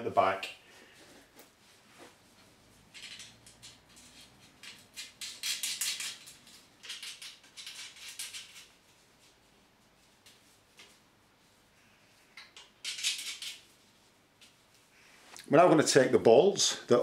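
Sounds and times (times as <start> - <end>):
metal clinks and rattles: 2.9 - 8.8.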